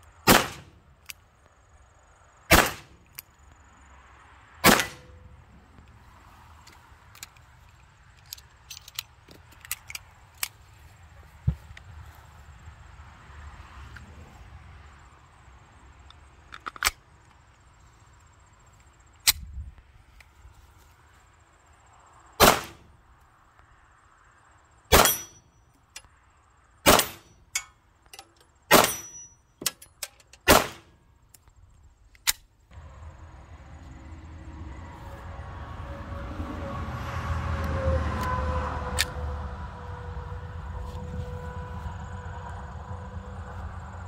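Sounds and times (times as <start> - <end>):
pistol shots: 0.3 - 0.8, 2.5 - 3.0, 4.6 - 5.1, 22.4 - 22.8, 26.9 - 27.3, 28.7 - 29.2, 30.5 - 30.9
metallic gun handling clicks: 6.7 - 10.6, 16.1 - 17.0, 27.5 - 30.5, 31.3 - 32.5.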